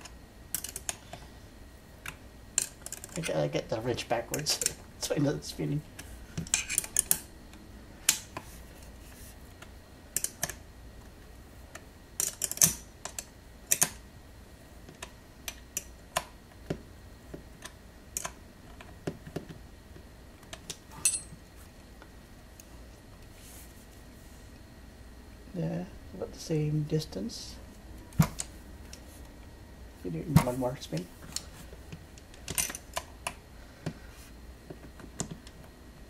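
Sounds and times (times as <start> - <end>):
small metal and plastic parts clicking: 0.5 - 1.1, 2.0 - 3.3, 10.2 - 10.6, 12.2 - 14.0.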